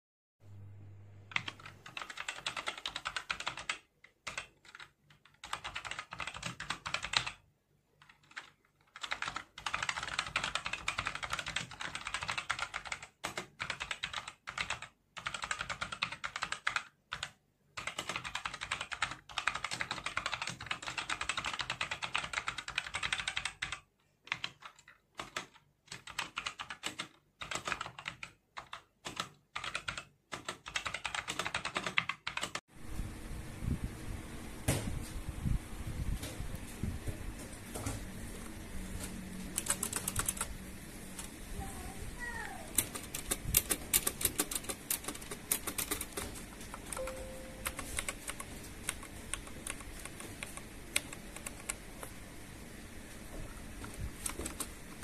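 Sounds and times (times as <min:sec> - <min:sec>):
mechanical keyboard typing: 0:01.3 - 0:07.4, 0:08.0 - 0:32.6, 0:39.5 - 0:40.5, 0:42.7 - 0:52.1, 0:53.8 - 0:55.0.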